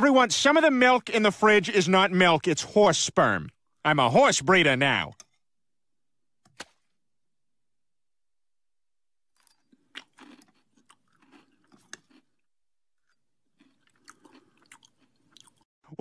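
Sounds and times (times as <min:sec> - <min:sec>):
child chewing cereal: 0:09.3 - 0:15.7.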